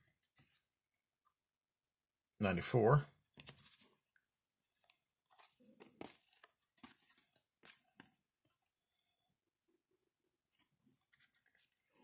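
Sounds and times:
cards being flipped through: 3.3 - 4.0, 4.8 - 8.2, 10.5 - 12.0.

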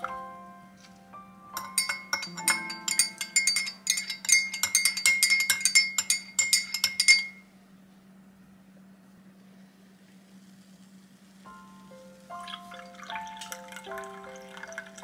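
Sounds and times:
spoon clinking in glass mug: 1.6 - 7.4.

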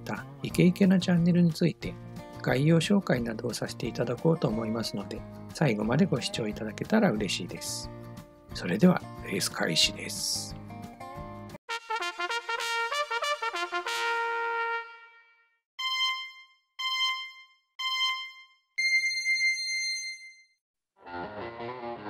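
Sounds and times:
trumpet fanfare: 11.7 - 15.4
countdown beeps: 15.8 - 20.3
long high beep: 15.8 - 20.4.

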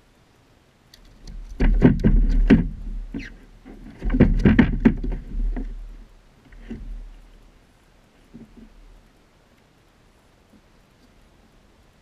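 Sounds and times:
low thump: 1.3 - 3.2, 4.0 - 6.0
knocking on plastic kayak hull: 1.6 - 3.1, 4.0 - 5.8.

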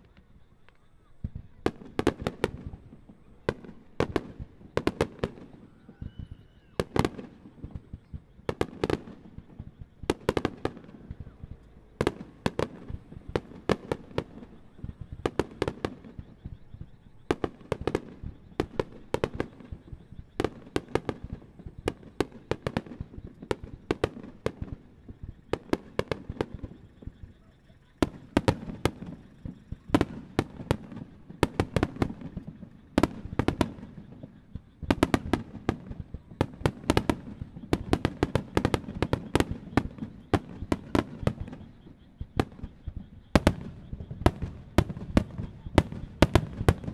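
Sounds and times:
fireworks bursting with sharp bangs: 0.0 - 46.9.

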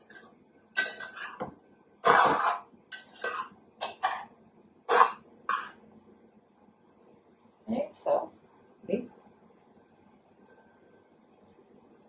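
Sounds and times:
spoon scraping metal pot: 0.0 - 4.3, 4.9 - 5.8.

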